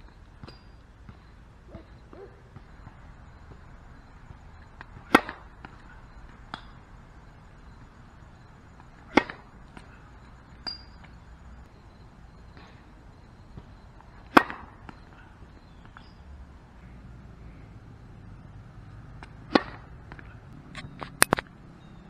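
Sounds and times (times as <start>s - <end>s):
tennis racket hitting ball: 4.8s - 5.8s, 9.0s - 9.9s, 14.3s - 14.8s, 19.2s - 20.4s.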